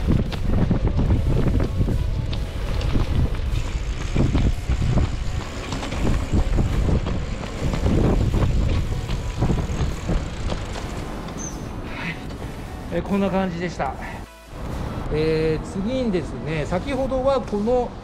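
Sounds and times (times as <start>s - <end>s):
wind buffeting microphone: 0.0s - 11.8s.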